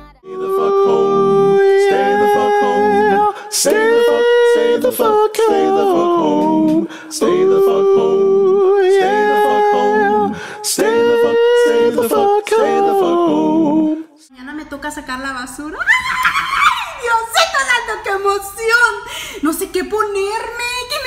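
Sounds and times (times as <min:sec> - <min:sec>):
person singing wordless melody: 0:00.0 - 0:14.3.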